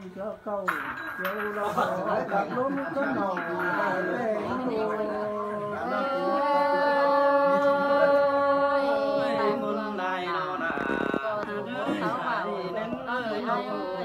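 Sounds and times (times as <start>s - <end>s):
person singing unaccompanied: 3.4s - 14.0s.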